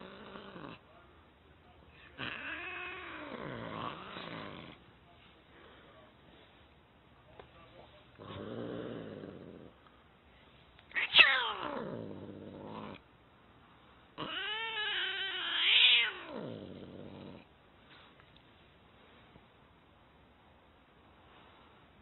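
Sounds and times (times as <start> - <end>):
cat yowling: 10.9 - 12.0, 14.2 - 16.5.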